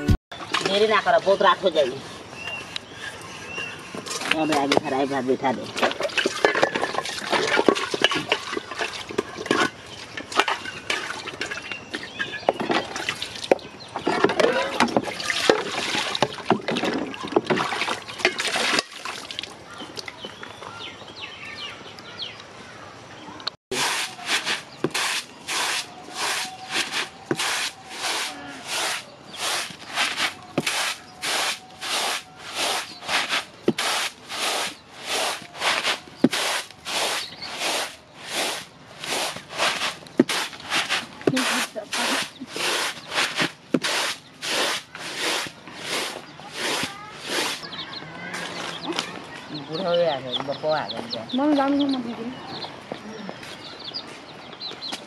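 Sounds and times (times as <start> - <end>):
water splashing in a basin: 5.6 - 12.0, 12.8 - 13.6, 14.4 - 20.4
dishes clinking: 5.8 - 12.9
grain swishing on a bamboo tray: 23.7 - 47.6.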